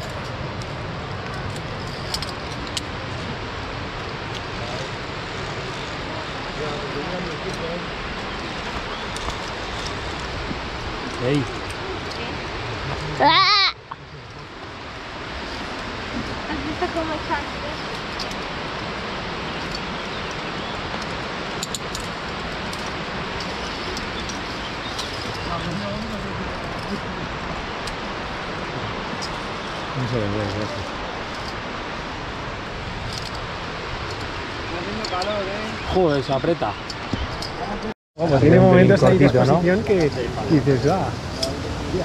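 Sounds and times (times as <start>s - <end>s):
wind on microphone: 0.0s - 37.9s
steady rushing noise: 0.0s - 42.0s
carabiners clinking on metal: 21.0s - 25.6s.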